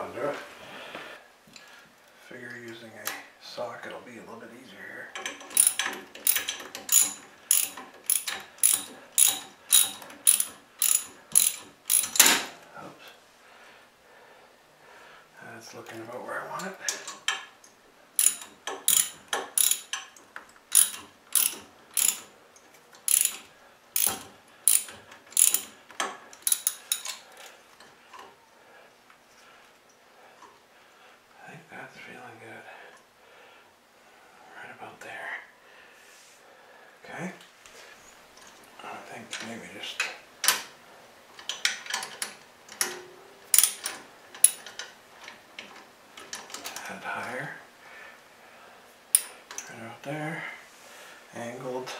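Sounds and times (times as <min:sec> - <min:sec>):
ratchet wrench clicking: 0:05.2 - 0:12.3, 0:18.2 - 0:22.3, 0:23.0 - 0:27.2, 0:43.5 - 0:44.7.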